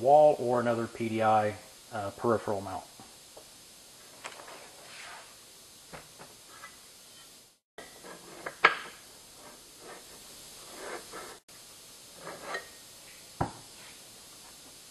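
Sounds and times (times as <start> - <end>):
metal bracket rubs and knocks: 7.9 - 11.4, 12.2 - 12.7.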